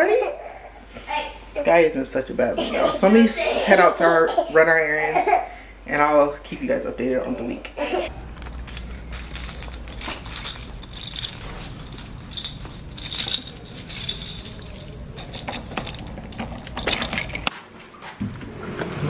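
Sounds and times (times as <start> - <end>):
keys jangling: 8.4 - 17.5.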